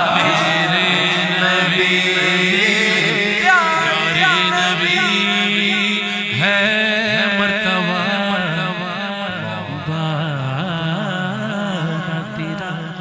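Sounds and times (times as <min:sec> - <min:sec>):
low drone: 0:00.0 - 0:06.0
man singing ornamented lines: 0:00.0 - 0:13.0.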